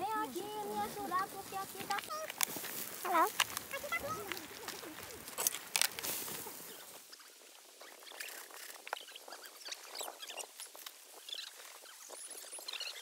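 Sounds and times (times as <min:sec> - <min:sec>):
meat sizzling on a grill: 0:06.0 - 0:07.8.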